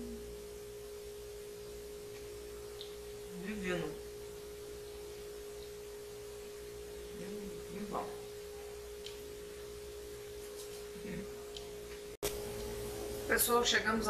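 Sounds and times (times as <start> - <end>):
woman humming mm: 0.0 - 0.5, 7.1 - 8.1
electrical hum: 0.0 - 14.0
faint chewing clicks: 9.0 - 9.2.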